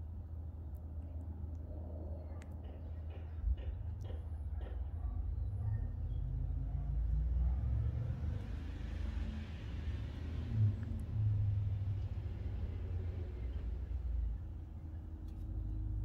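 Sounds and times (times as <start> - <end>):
car passing with tyre hiss: 7.6 - 14.4.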